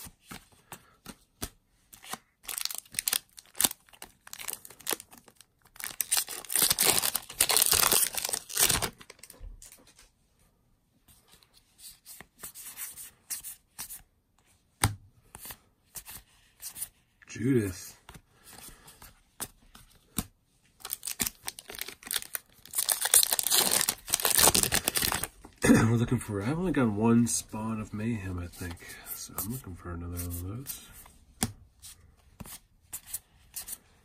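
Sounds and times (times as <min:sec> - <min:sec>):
foil wrapper tearing and crinkling: 0:02.5 - 0:09.2, 0:20.8 - 0:25.3.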